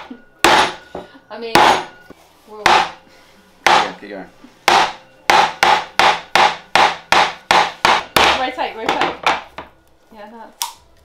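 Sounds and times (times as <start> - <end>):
hammer striking coconut: 0.4 - 2.0, 2.6 - 3.0, 3.6 - 4.0, 4.7 - 9.4.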